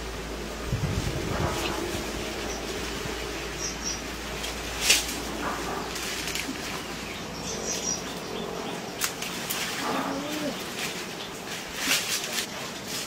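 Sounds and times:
leaves and branches rustling: 0.0 - 13.0
branches snapping: 4.4 - 7.0, 9.0 - 13.0
low animal call: 9.7 - 10.8.

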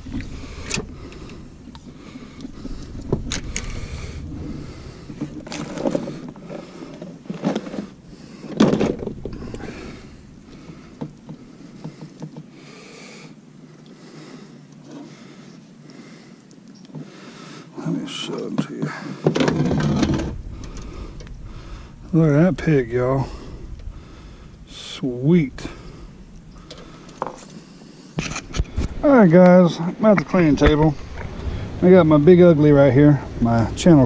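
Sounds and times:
low rumble: 0.0 - 11.8, 19.5 - 29.3, 29.9 - 34.0
knocks rustles and clatter: 2.4 - 12.5, 18.4 - 21.4, 26.6 - 27.6.

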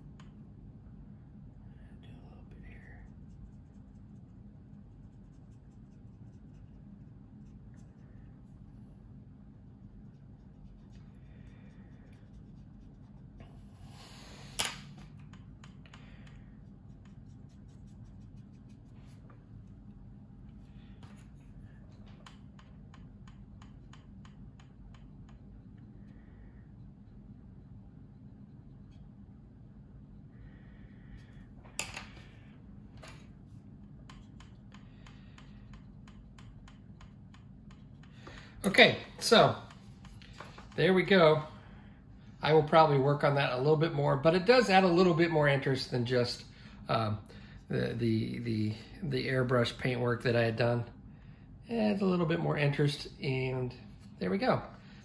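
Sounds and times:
low hum: 0.0 - 55.0
paintbrush scratching: 2.6 - 14.3, 16.5 - 25.8
paintbrush clicks and taps: 22.1 - 25.5, 33.8 - 38.8.

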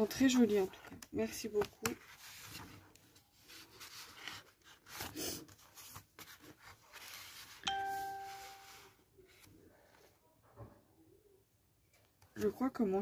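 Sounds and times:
paper rustling: 0.0 - 10.1
ringing ding: 7.7 - 8.7.

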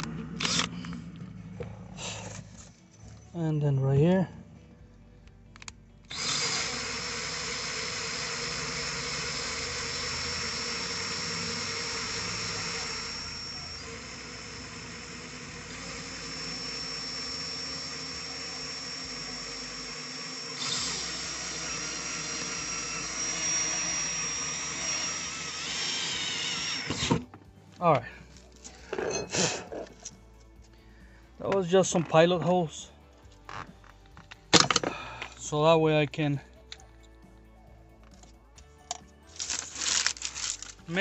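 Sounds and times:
cordless drill whining: 0.0 - 3.3, 5.6 - 32.4, 38.6 - 41.0.

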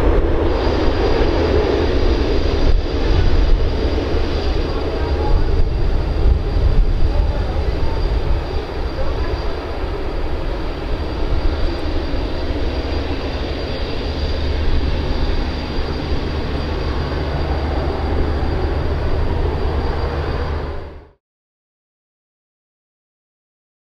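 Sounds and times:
jet engines rumbling with whine: 0.0 - 21.2.

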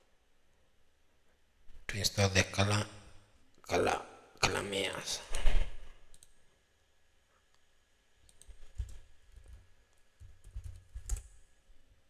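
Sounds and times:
mouse clicks: 6.1 - 6.4, 8.2 - 9.5
keyboard typing: 8.2 - 9.6, 10.2 - 11.4.

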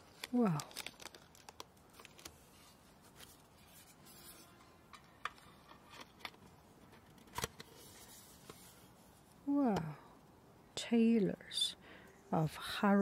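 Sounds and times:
plastic packing clicks and rustles: 0.0 - 3.4, 5.0 - 7.7.

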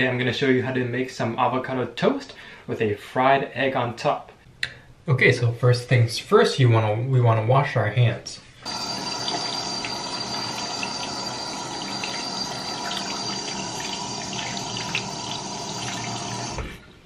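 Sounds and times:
water running from a tap: 8.6 - 16.7.

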